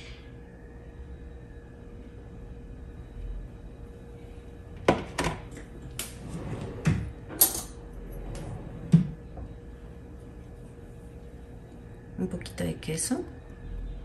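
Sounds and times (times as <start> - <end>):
dishes and utensils clinking: 7.3 - 7.8.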